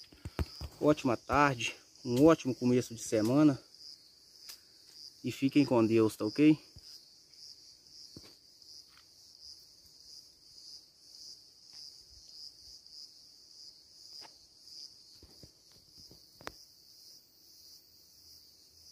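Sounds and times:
insect chorus trilling: 0.0 - 18.9.

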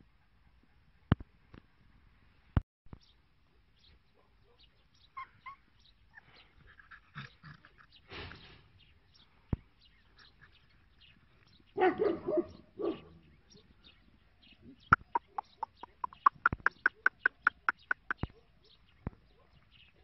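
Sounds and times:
puppies yipping: 5.2 - 7.9, 14.9 - 18.5
puppies barking and yapping: 14.9 - 19.6.

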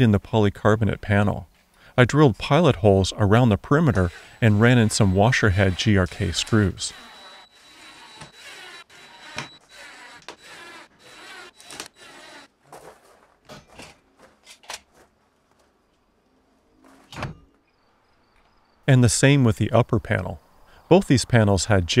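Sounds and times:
cordless drill driving screws: 3.7 - 12.5.

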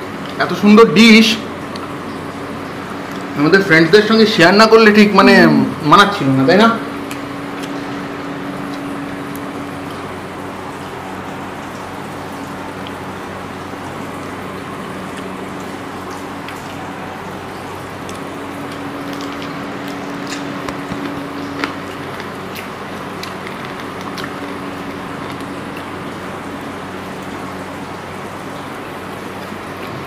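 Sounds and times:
steady background hum: 0.0 - 30.0
chewing: 18.0 - 26.0
fingers squishing rice: 18.0 - 26.0.

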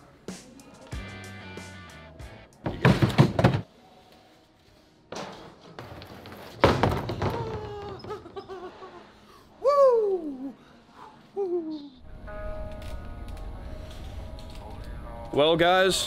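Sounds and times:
plywood sheets thudding on plastic: 2.6 - 3.7, 5.2 - 8.0.

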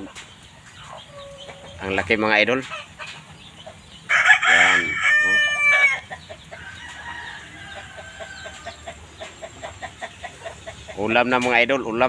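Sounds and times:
rooster crowing: 4.1 - 9.0.

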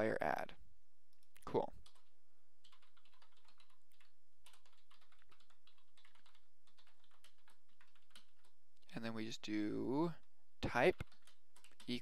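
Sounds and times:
computer keyboard typing: 1.7 - 8.9, 10.0 - 12.0.

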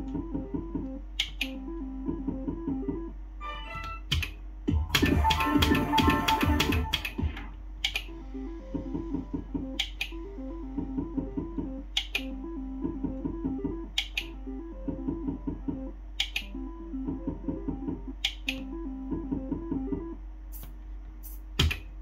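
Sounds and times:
electronic slot machine tunes: 1.6 - 7.5
electronic jingle: 4.9 - 7.3.

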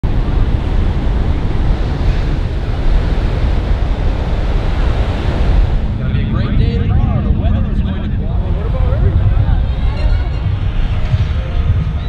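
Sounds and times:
ocean surf breaking on shore: 0.0 - 12.0
wind buffeting microphone: 0.0 - 12.0.

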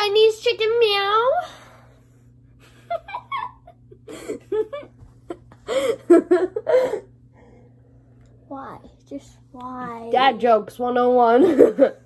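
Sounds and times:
boys laughing and giggling: 2.6 - 7.1, 11.3 - 12.0.

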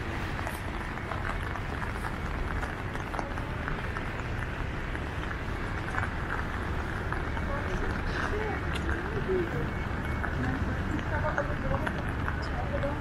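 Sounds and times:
traffic rumble: 0.0 - 13.0.

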